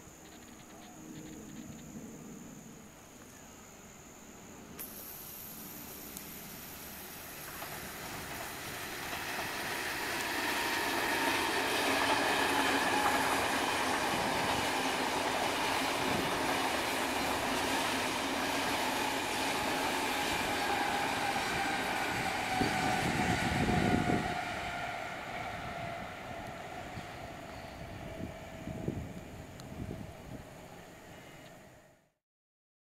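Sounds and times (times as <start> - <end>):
train wheels rumbling on rail: 5.9 - 31.8.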